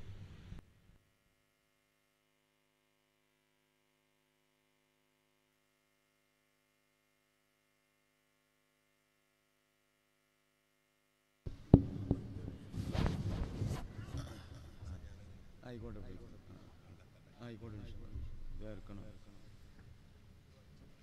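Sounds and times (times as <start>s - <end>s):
faint mains hum: 0.0s - 21.0s
microphone knock: 11.5s - 14.6s.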